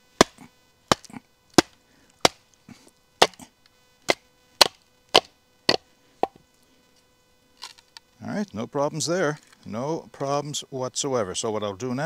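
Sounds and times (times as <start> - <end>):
baton knocking knife through log: 0.2 - 2.4, 3.2 - 3.4, 4.1 - 5.8.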